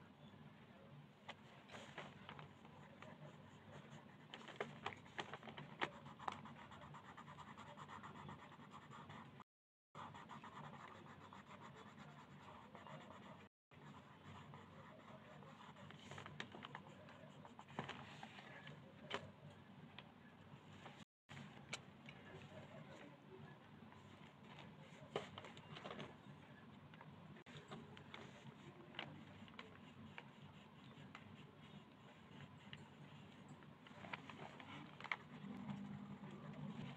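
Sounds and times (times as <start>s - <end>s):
pencil shading on paper: 5.8s - 9.4s, 10.0s - 17.7s, 28.1s - 33.5s.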